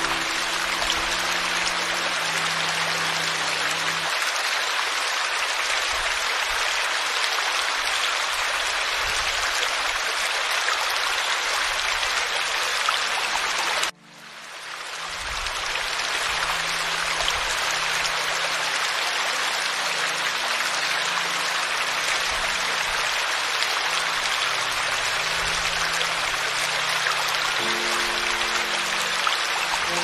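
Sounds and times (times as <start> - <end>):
soft music with low tones: 0.0 - 4.2, 12.7 - 30.0
stream splashing over cascade: 0.0 - 30.0.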